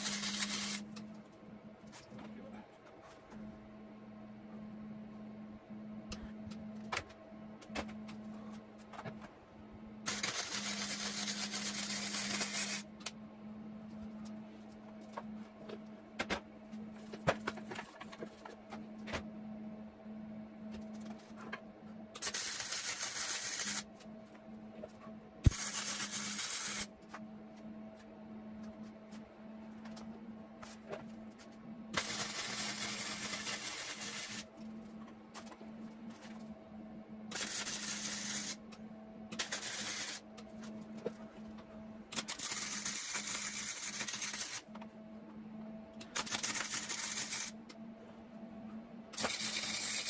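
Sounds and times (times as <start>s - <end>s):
welder arcing: 0.0s - 1.0s, 10.1s - 13.1s, 22.2s - 23.9s, 25.4s - 26.9s, 31.9s - 34.5s, 37.3s - 38.7s, 39.3s - 40.2s, 42.1s - 44.7s, 46.0s - 47.6s, 49.2s - 50.0s.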